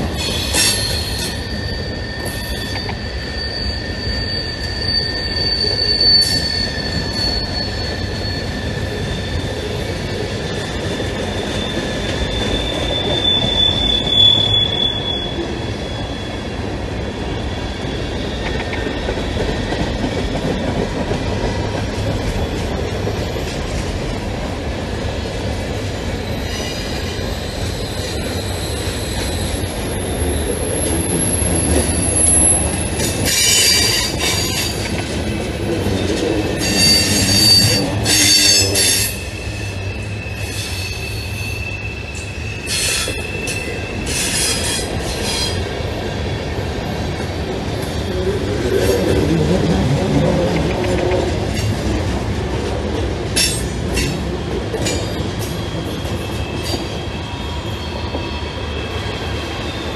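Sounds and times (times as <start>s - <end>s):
steel wheels rumbling on rail: 0.0s - 59.9s
high wheel squeals: 0.1s - 20.6s, 25.9s - 50.5s.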